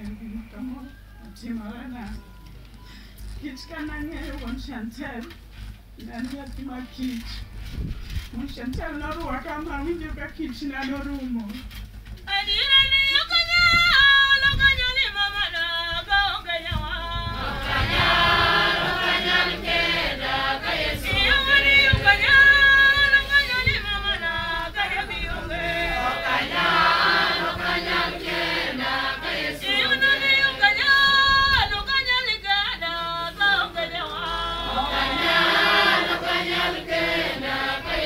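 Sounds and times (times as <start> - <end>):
woman singing into a microphone: 12.3 - 17.6, 20.9 - 26.2, 29.6 - 35.2
women singing a hymn: 15.4 - 38.0.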